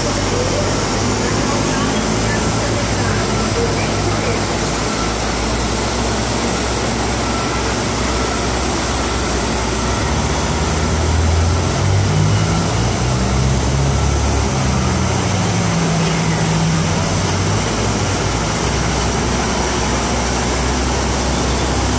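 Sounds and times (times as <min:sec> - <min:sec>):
heavy vehicle engine humming: 0:00.0 - 0:21.9
street traffic noise: 0:00.0 - 0:21.9.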